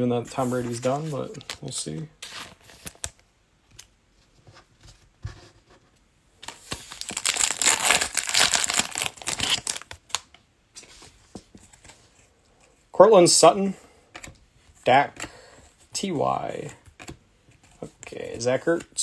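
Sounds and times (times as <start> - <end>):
foil wrapper tearing and crinkling: 6.5 - 10.2.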